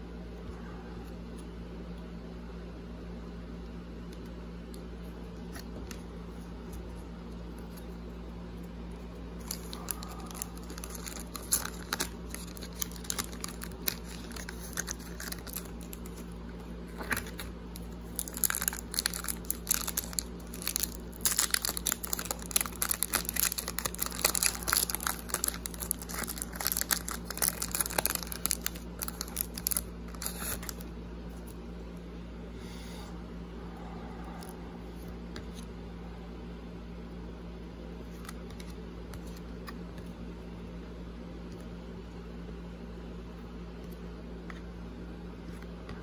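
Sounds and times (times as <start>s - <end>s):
wrapper crinkling and tearing: 9.4s - 30.8s.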